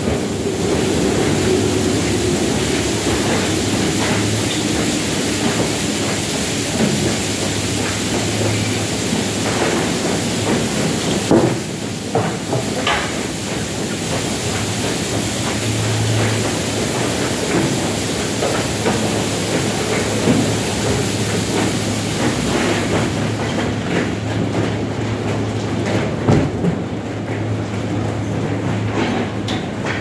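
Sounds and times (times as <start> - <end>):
water spray hiss: 0.0 - 23.4
car wash machinery hum: 0.0 - 30.0.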